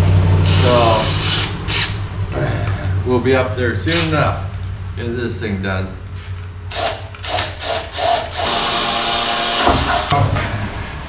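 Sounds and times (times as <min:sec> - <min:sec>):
cordless drill whirring: 0:00.5 - 0:02.0, 0:06.2 - 0:10.1.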